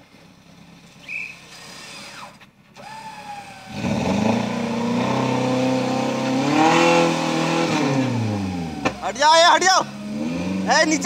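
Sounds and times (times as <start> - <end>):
high whistle-like tone: 1.0 - 1.5
engine revving hard under load: 1.1 - 11.0.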